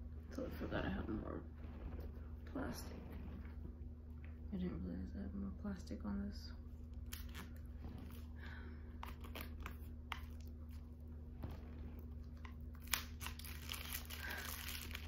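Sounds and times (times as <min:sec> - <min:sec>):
shrink-wrap crinkling: 0:12.3 - 0:15.0.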